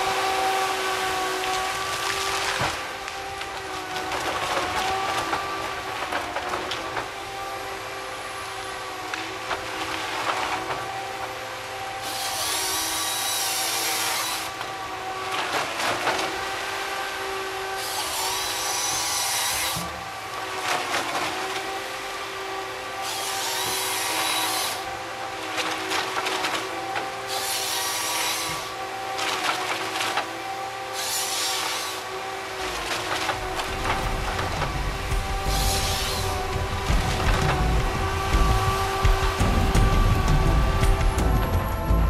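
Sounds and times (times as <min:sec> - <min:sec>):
chain saw cutting log: 0:00.0 - 0:41.9
wood snapping and cracking: 0:01.4 - 0:07.2, 0:15.3 - 0:16.5, 0:25.6 - 0:27.2, 0:29.2 - 0:30.4, 0:32.6 - 0:41.8
diesel engine under hydraulic load: 0:32.0 - 0:42.0.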